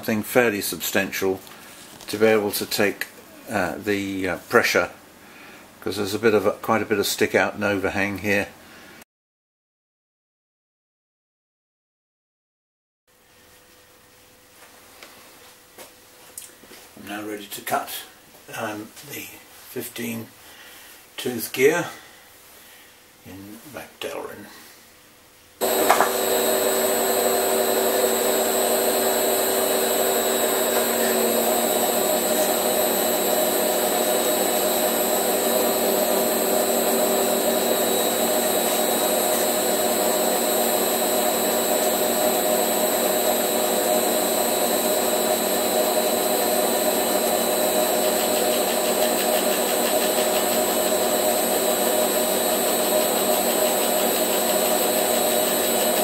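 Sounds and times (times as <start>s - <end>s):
lathe gear hobbing whine: 25.6s - 56.0s.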